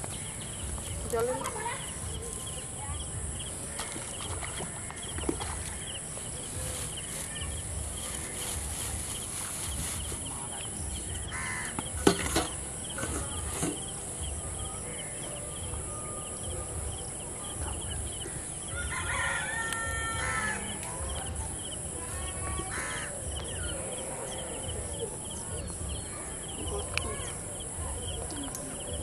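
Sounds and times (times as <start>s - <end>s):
insects buzzing: 0.0s - 29.0s
rooster crowing: 18.7s - 20.7s.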